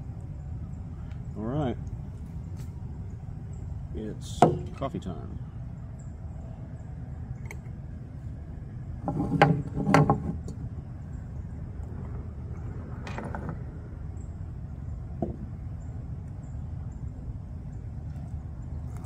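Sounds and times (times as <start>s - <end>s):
steady low rumble: 0.0s - 19.0s.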